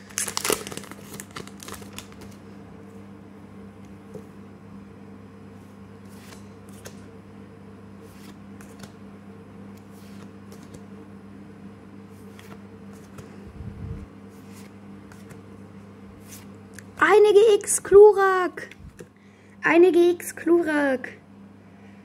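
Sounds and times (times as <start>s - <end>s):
steady low hum: 0.0s - 22.0s
cards swishing: 6.0s - 7.1s, 8.0s - 9.0s, 9.7s - 10.8s, 12.1s - 13.4s, 14.3s - 15.5s, 16.1s - 16.6s.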